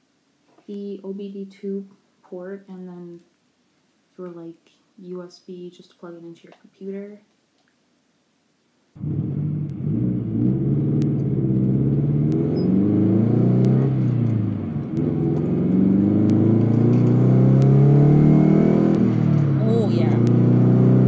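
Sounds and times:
car engine from inside cabin: 9.0s - 21.0s.

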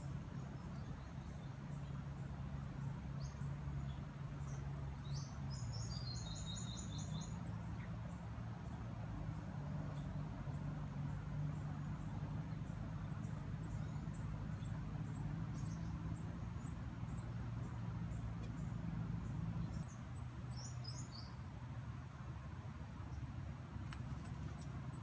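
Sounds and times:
insects trilling: 0.0s - 8.5s
low steady hum: 0.0s - 25.0s.

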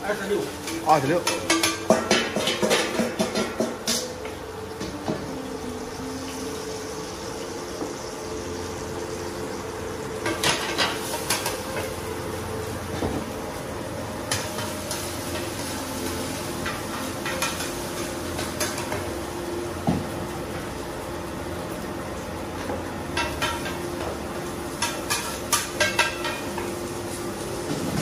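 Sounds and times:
eggs sizzling in oil: 0.0s - 28.0s
metal utensils clinking on pans: 0.4s - 5.0s, 10.2s - 12.0s, 14.2s - 19.2s, 23.1s - 27.1s.

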